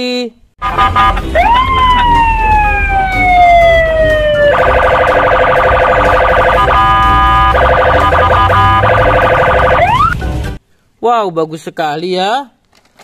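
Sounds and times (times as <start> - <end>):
police siren: 0.6 - 10.2.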